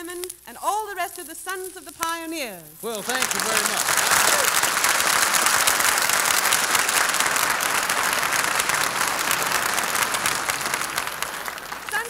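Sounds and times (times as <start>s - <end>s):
audience applauding: 2.8s - 12.0s.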